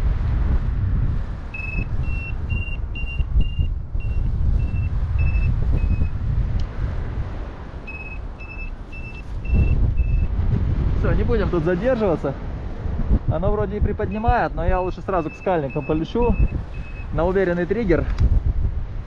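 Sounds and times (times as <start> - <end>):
wind rumble on microphone: 0.0 - 19.0
variometer beeping: 1.5 - 6.2, 7.9 - 10.3, 15.1 - 17.2.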